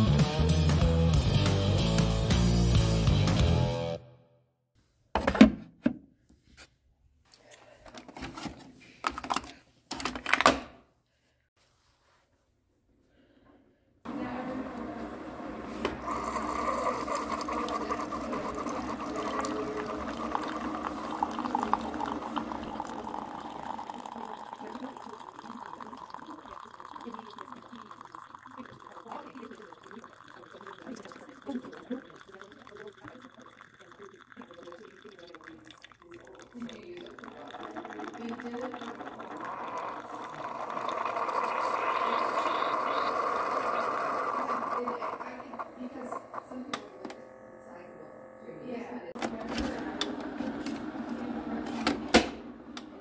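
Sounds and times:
coffee trickling into mug: 14.1 - 47.2
coffee brewer pump humming: 14.1 - 53.0.

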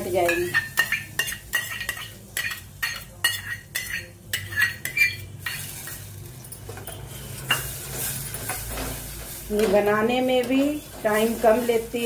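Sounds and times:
metal spoon scraping steel pot: 0.2 - 6.1.

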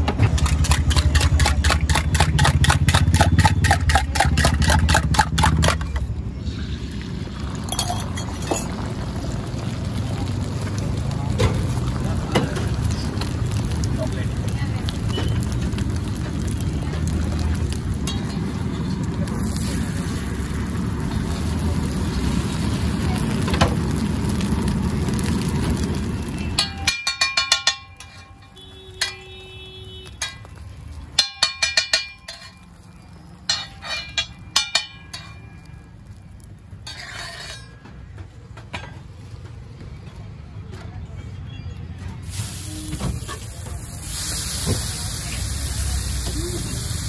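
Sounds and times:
gas burner roaring: 0.0 - 37.9, 42.2 - 47.0
metal utensils clinking: 7.6 - 8.9, 26.4 - 29.4, 30.2 - 30.6, 31.2 - 32.8, 33.4 - 35.9, 36.8 - 38.0.

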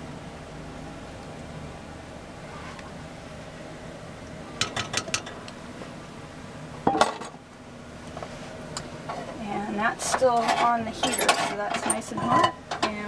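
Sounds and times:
metal utensil clinking on iron pot: 4.6 - 5.4, 10.0 - 13.0.

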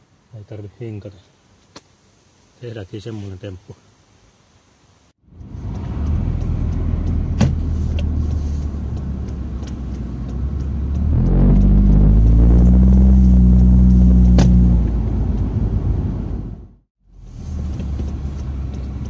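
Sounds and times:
car engine: 5.2 - 19.0
road noise: 5.2 - 19.0.

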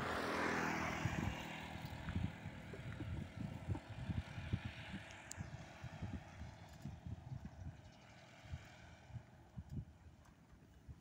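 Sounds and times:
propeller aircraft flying past: 0.0 - 10.7
wind thumps on microphone: 1.0 - 7.8.

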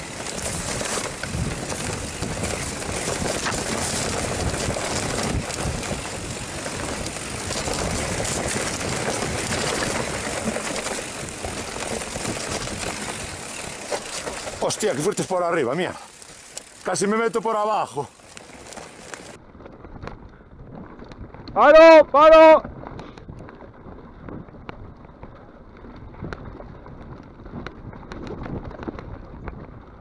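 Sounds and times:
bike knocking and rattling: 0.0 - 30.0
rush of riding noise: 0.0 - 30.0.

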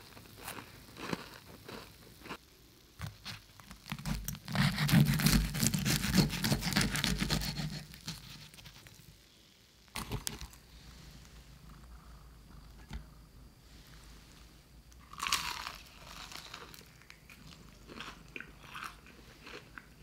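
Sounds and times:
fried chicken crust crunching: 0.2 - 2.4, 15.0 - 19.9.

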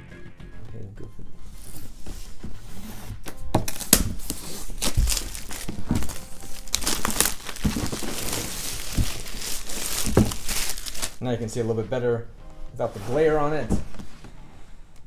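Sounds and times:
plastic shrink wrap crinkling and tearing: 3.7 - 11.2.

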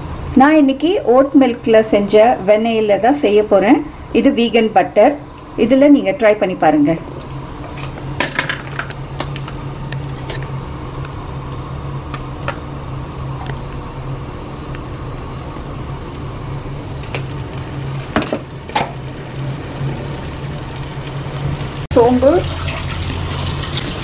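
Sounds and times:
steady low hum: 0.0 - 24.0
butter sizzling in pan: 7.4 - 24.0.

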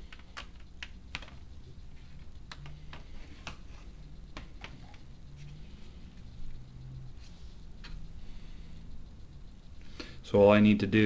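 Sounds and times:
low steady hum: 0.0 - 11.0
light sharp clicks and taps: 2.4 - 3.6.

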